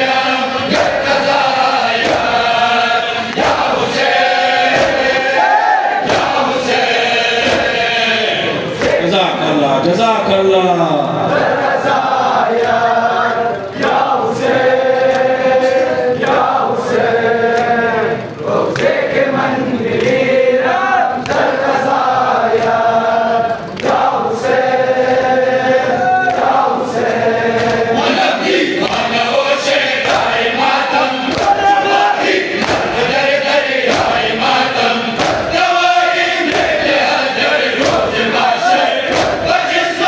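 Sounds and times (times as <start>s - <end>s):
crowd of men chanting: 0.0s - 10.0s, 10.8s - 40.0s
hands slapping chests: 21.2s - 21.6s, 26.2s - 27.8s, 28.8s - 29.1s, 31.3s - 31.6s, 32.6s - 33.0s, 33.8s - 34.2s, 35.2s - 35.5s, 36.5s - 36.8s, 37.8s - 38.2s, 39.1s - 39.5s.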